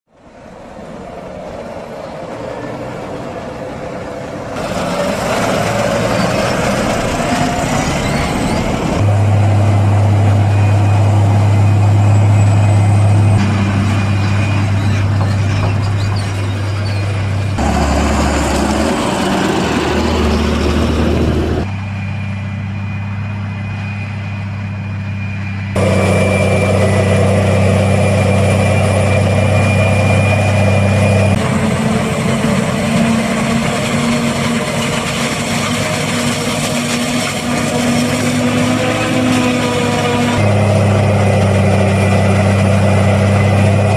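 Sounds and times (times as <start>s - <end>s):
heavy diesel engine drone: 0.1s - 43.9s
thin high whine: 21.6s - 33.4s.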